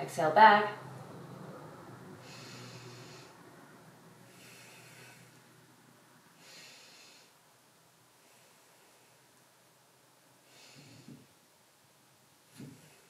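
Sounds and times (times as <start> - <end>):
woman breathing slowly: 1.7 - 9.8, 10.4 - 11.4, 12.5 - 13.0.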